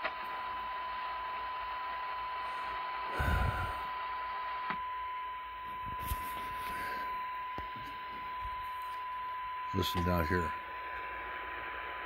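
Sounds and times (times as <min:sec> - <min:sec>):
radio noise hiss: 0:00.0 - 0:12.0
test tone from speaker: 0:04.6 - 0:11.1.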